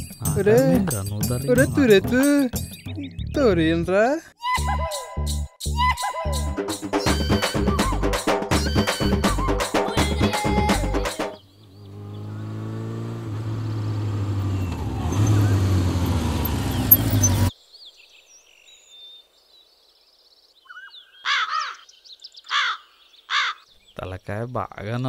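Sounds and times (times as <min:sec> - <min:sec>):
motorcycle engine running: 0:11.8 - 0:17.5
crow cawing: 0:20.7 - 0:21.9, 0:22.5 - 0:23.7.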